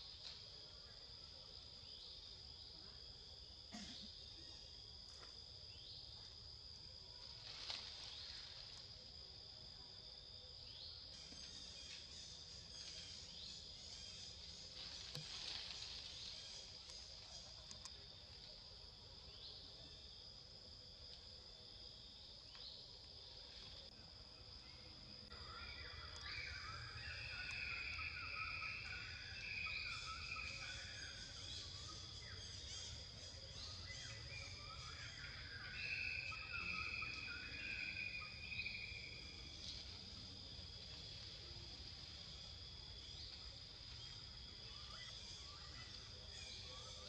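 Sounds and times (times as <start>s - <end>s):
insects droning: 0.0s - 47.0s.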